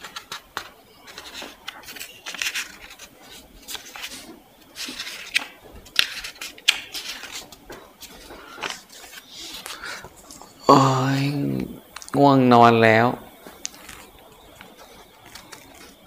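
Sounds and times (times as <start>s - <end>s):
handling rustling scrapes: 0.0s - 10.6s.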